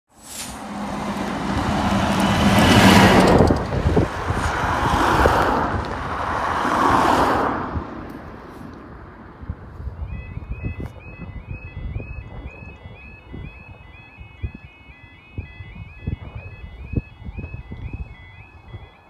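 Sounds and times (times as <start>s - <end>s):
car driving past: 0.2s - 7.8s
lorry driving past: 0.2s - 7.8s
van driving past: 0.2s - 7.8s.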